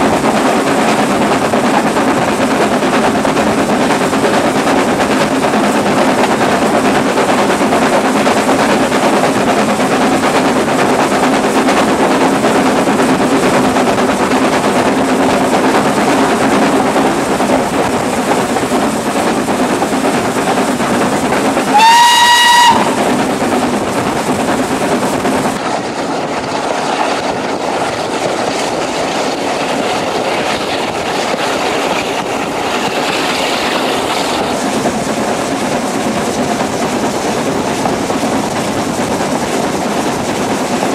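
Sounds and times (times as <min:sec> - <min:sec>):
train wheels rumble and clatter: 0:00.0 - 0:40.9
steam whistle: 0:21.7 - 0:23.0.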